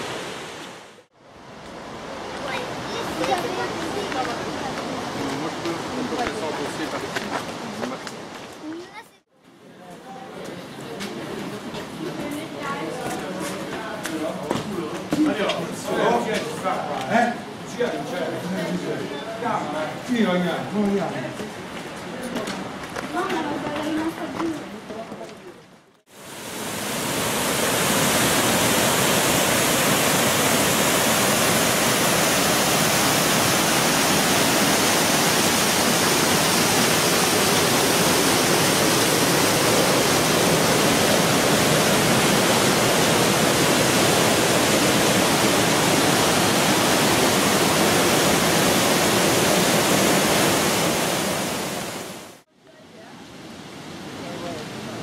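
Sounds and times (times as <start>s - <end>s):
waterfall rushing: 0.0s - 8.4s, 26.1s - 52.4s.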